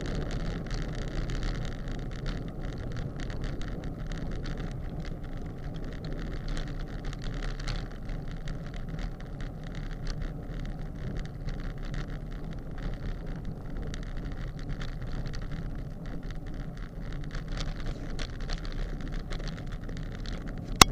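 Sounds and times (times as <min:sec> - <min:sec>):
faint irregular ticks: 0:00.0 - 0:20.9
tyre noise on coarse road: 0:00.0 - 0:20.9.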